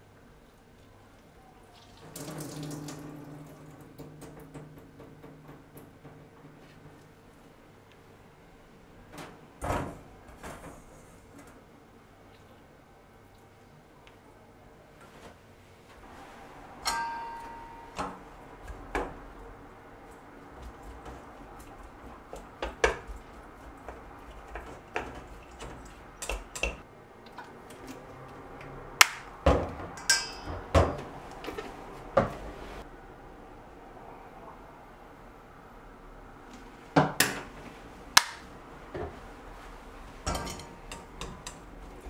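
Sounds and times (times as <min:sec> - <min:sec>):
metal bowl ringing: 0:16.8 - 0:18.2, 0:30.0 - 0:30.7.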